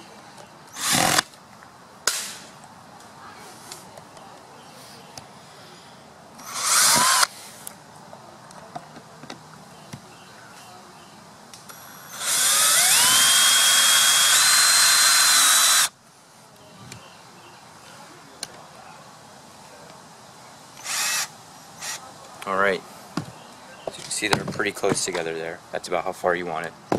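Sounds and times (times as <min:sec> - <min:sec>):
cordless drill whining: 0:00.8 - 0:01.3, 0:06.4 - 0:07.3, 0:12.0 - 0:15.9, 0:20.8 - 0:22.0.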